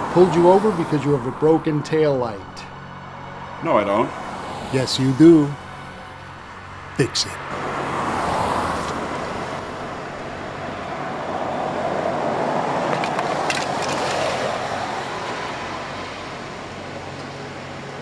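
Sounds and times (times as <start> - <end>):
car tyres hissing on wet road: 7.6 - 9.8.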